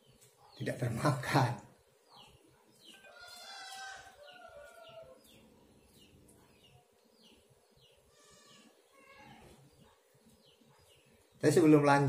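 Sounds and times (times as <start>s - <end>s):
faint bird calls: 8.0s - 11.3s.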